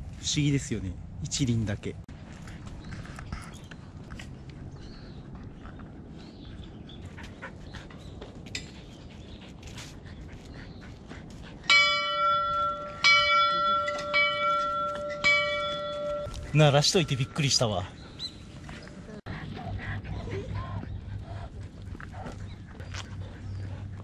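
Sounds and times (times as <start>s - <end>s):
hanging metal bell struck: 11.7s - 17.8s.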